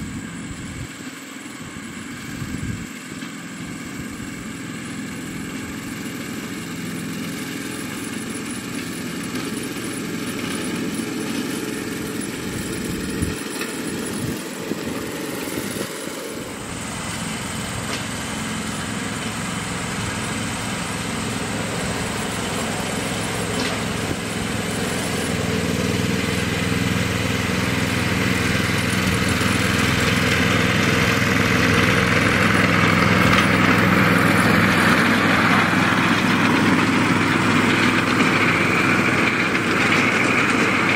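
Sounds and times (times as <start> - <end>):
miniature locomotive engine running: 0.0 - 40.9.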